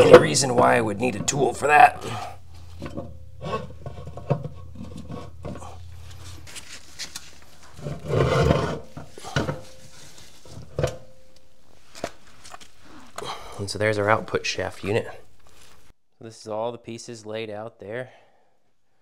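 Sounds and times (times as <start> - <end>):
metal parts clunking and scraping: 0.0 - 12.7.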